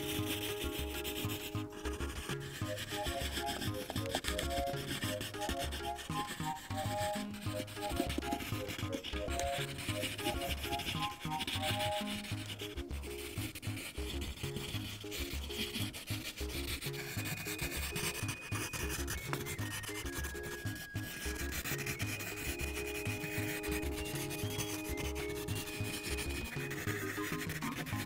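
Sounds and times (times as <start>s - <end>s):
pencil shading on paper: 0.0s - 28.0s.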